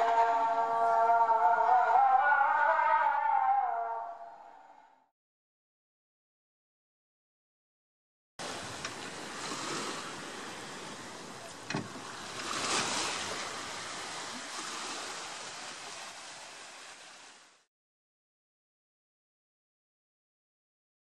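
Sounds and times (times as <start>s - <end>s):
small waves lapping around dock: 0.0s - 2.9s, 8.4s - 17.7s.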